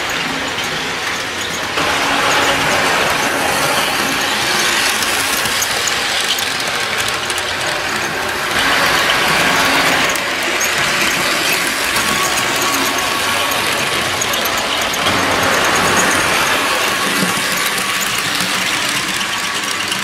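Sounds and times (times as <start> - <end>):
model train motor whirring: 0.0 - 20.0
wheels ticking on rails: 0.0 - 20.0.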